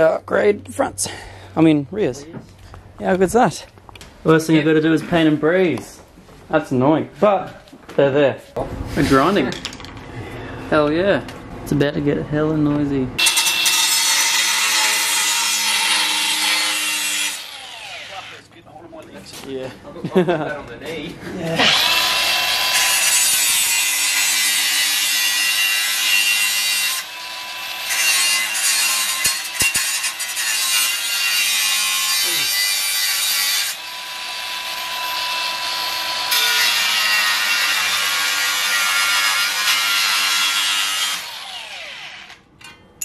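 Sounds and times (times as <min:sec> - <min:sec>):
angle grinder cutting steel: 0:13.2 - 0:18.5, 0:21.6 - 0:42.4.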